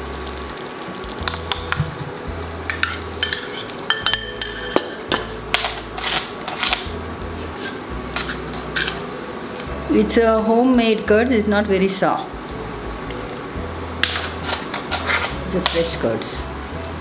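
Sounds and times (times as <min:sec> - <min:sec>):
background music: 0:00.0 - 0:17.0
metal spoon clinking on pots: 0:02.7 - 0:05.9.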